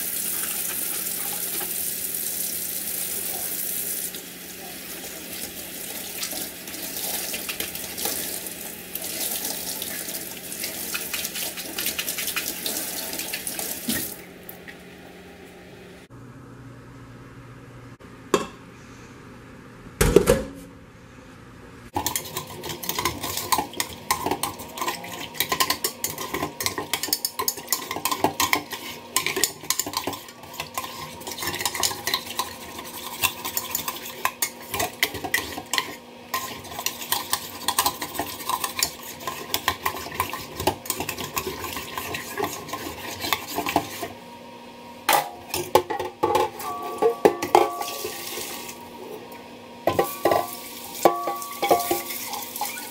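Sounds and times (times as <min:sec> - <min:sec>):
metal spoon scraping a pot: 0:22.0 - 0:44.1.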